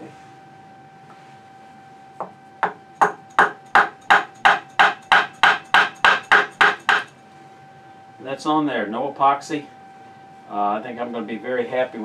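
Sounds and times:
wooden mallet knocking on handle: 0:02.6 - 0:07.1.

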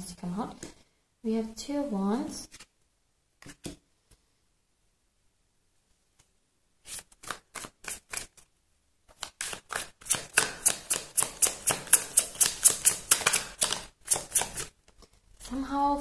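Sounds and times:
cards being shuffled: 0:06.8 - 0:08.5, 0:09.1 - 0:15.1.

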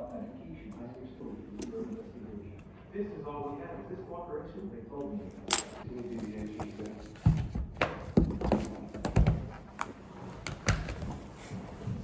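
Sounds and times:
pens knocking and clicking on desk: 0:05.5 - 0:11.0.

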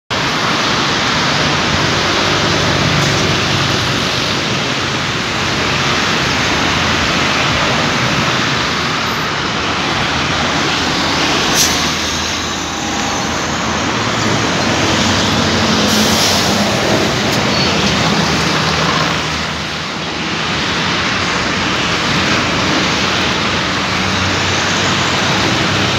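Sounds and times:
truck rumble: 0:00.1 - 0:25.9
passing car engines: 0:00.2 - 0:25.9
tyre hiss from traffic: 0:10.6 - 0:19.8.

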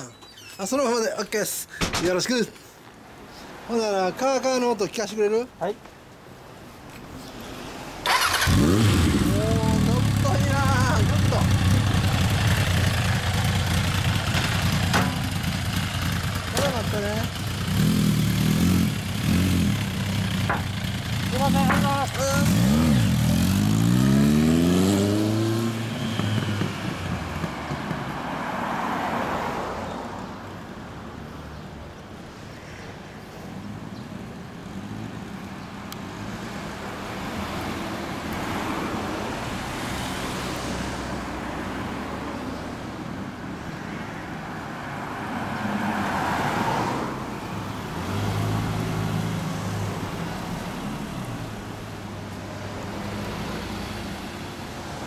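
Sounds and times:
street traffic noise: 0:00.0 - 0:55.0
motorcycle accelerating away: 0:08.1 - 0:28.1.

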